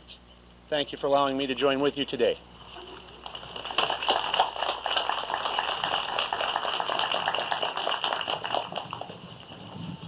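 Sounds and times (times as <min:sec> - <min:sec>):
audience applauding: 0:03.2 - 0:09.2.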